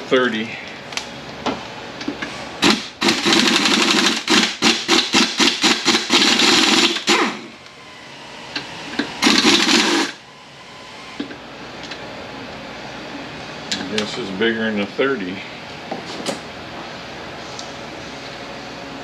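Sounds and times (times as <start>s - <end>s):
pneumatic wrench rattling: 2.6s - 7.5s, 9.2s - 10.2s.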